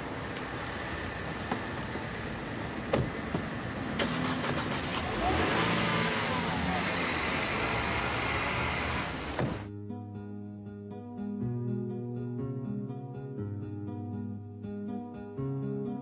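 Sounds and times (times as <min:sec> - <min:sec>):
street traffic: 0:00.0 - 0:09.7
car door opening: 0:02.8 - 0:04.8, 0:09.2 - 0:09.7
vehicle passing: 0:03.6 - 0:09.4.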